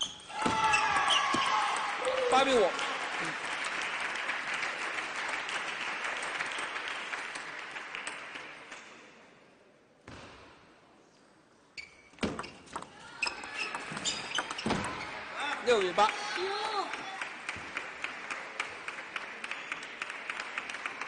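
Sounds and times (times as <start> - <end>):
clapping in a hall: 0.9 - 9.2, 15.4 - 21.0.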